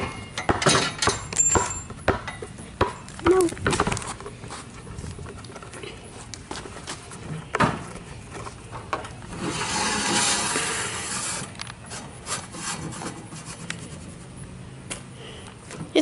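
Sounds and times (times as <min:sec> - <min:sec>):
scraping rub: 0:09.3 - 0:14.4.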